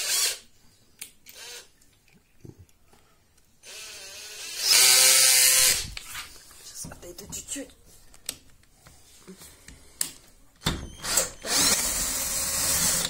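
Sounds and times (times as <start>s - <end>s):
cordless drill whining: 1.3s - 1.7s, 3.6s - 5.9s, 10.9s - 13.0s.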